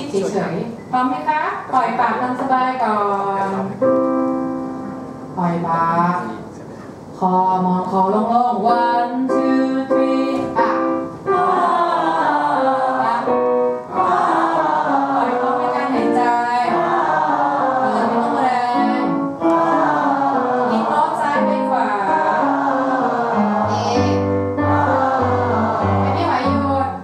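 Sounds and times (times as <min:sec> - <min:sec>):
piano notes: 0:03.4 - 0:06.5, 0:07.9 - 0:27.0
group singing ah vowel: 0:07.2 - 0:26.7.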